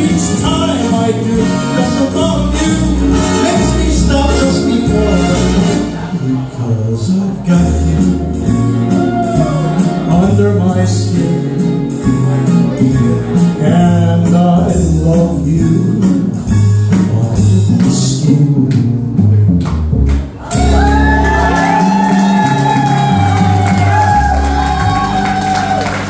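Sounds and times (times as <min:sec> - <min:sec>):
man singing into a microphone: 0:00.0 - 0:08.6, 0:09.2 - 0:19.0
pop backing track: 0:00.0 - 0:26.0.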